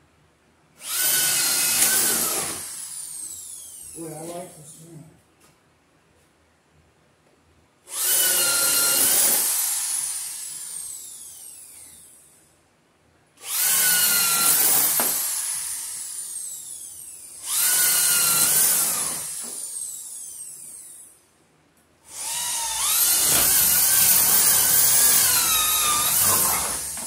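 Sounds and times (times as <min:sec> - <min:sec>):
electric drill motor whine: 0:00.8 - 0:04.0, 0:07.9 - 0:12.3, 0:13.4 - 0:21.2, 0:22.1 - 0:27.0.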